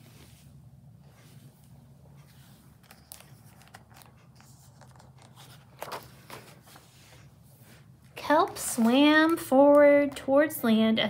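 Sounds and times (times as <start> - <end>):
paper rustling: 1.0 - 10.2
paper crinkles: 2.2 - 7.2.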